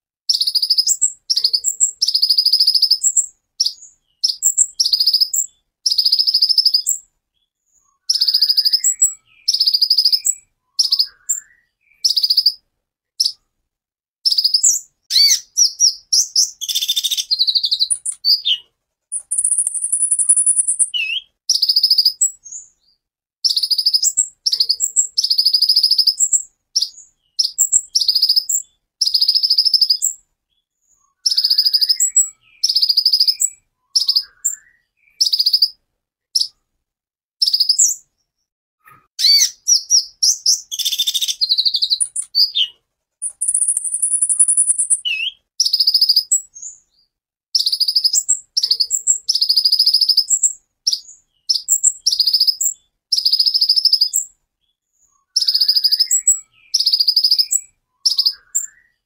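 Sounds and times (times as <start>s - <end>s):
bird singing high trills: 8.0s - 12.6s, 14.3s - 22.6s, 31.2s - 35.8s, 39.2s - 46.7s, 55.2s - 59.0s
bird whistle: 8.0s - 12.6s, 14.3s - 22.6s, 31.2s - 35.8s, 39.2s - 46.7s, 55.3s - 59.0s.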